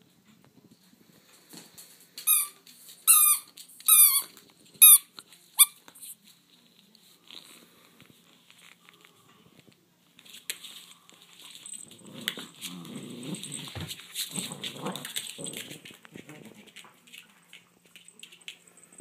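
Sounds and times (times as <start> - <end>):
dogs growling in play: 11.7 - 17.0.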